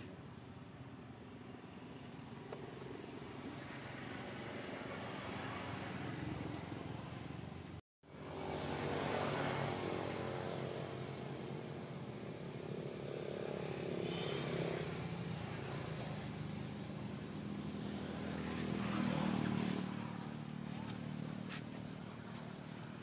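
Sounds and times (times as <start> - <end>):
outdoor background rumble: 0.0 - 23.0.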